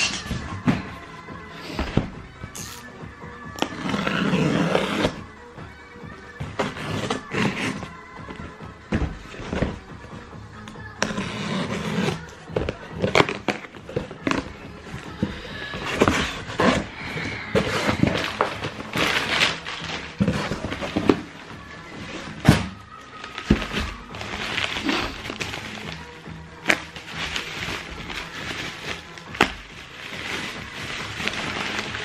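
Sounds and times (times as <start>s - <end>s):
music playing: 0.0s - 32.0s
cardboard box rustling and scraping: 11.0s - 22.6s, 23.2s - 26.0s.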